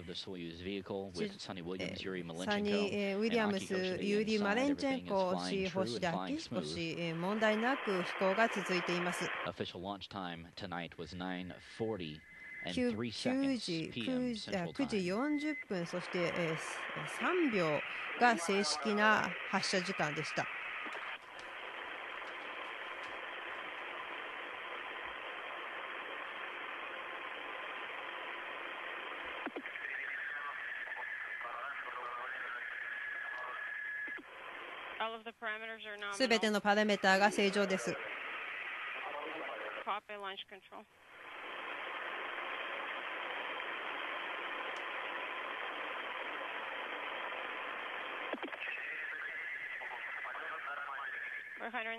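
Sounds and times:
faint steady tone: 0.0s - 20.7s
radio static hiss: 0.0s - 51.9s.

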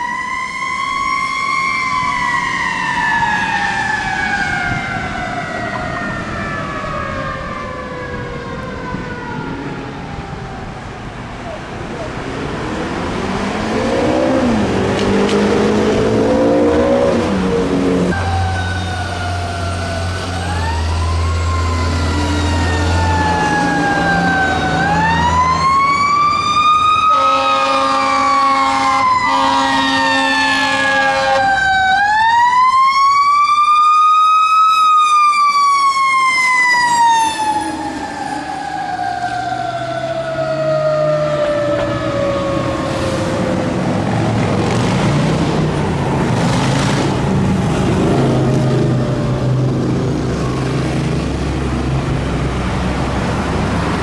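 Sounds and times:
fire engine siren wailing: 0.0s - 54.0s
horn blasts: 27.1s - 31.5s.

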